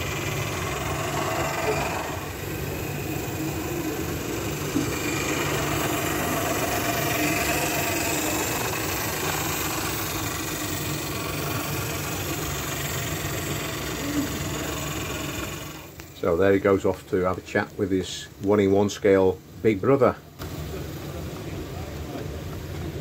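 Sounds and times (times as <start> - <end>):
model steam engine beat: 0.0 - 16.0.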